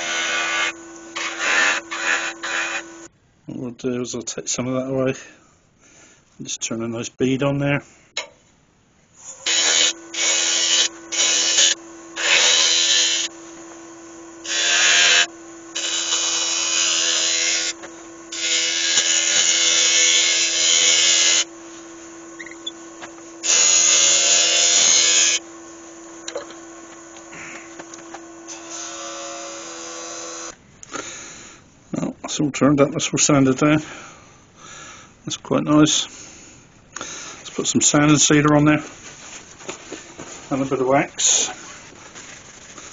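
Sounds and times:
turning tool cutting wood: 0.0 - 3.1, 9.2 - 30.6, 40.5 - 41.6
wood lathe humming: 0.0 - 3.1, 9.2 - 30.6, 40.5 - 41.9.

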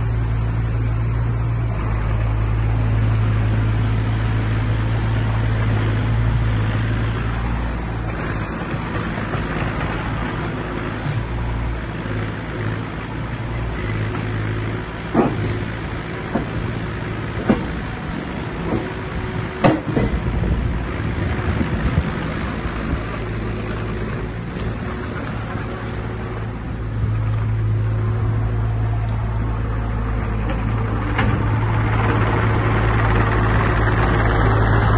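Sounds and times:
excavator diesel engine running: 0.0 - 34.9.

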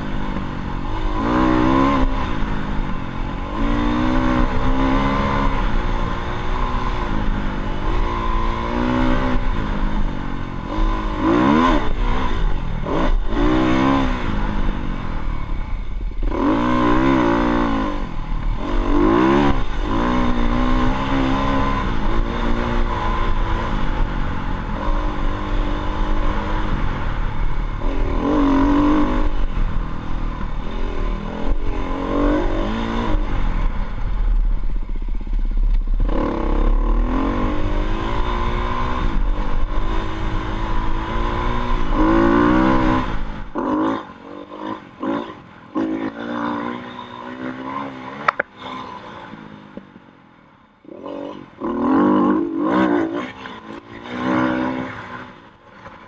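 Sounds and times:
dirt bike engine revving: 0.0 - 49.6, 50.9 - 55.4.

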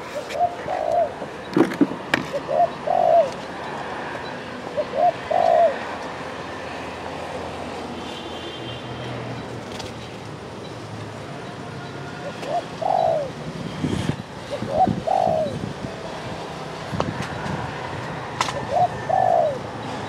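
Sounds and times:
dove cooing: 0.0 - 1.5, 2.1 - 6.0, 12.2 - 13.4, 14.4 - 15.7, 18.5 - 20.0.

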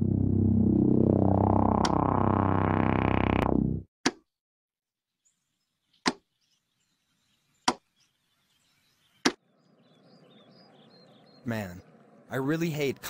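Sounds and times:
sharp hit sound effects: 0.0 - 3.8
theme music: 0.0 - 3.9.

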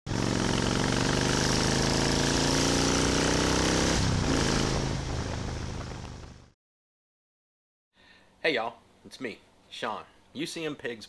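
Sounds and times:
motorcycle engine accelerating: 0.1 - 6.6.

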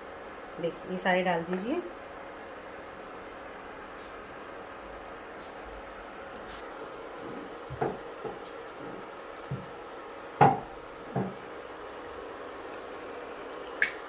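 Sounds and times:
cookies sizzling in oil: 6.6 - 14.0.

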